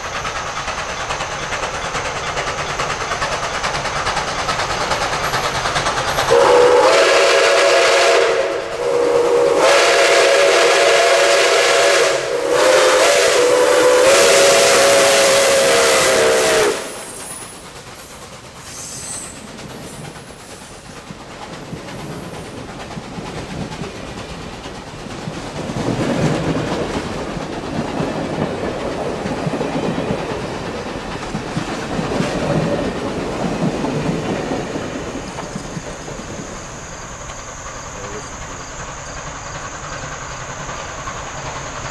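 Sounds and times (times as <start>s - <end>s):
train rolling on rails: 0.0s - 41.9s
steam whistle blasts: 6.3s - 17.2s.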